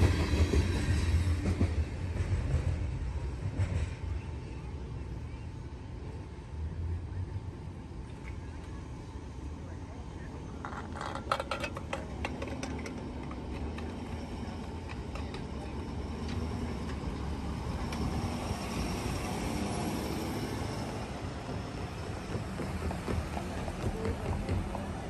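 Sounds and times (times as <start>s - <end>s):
vehicle engine and tyres rumbling: 10.2s - 25.0s.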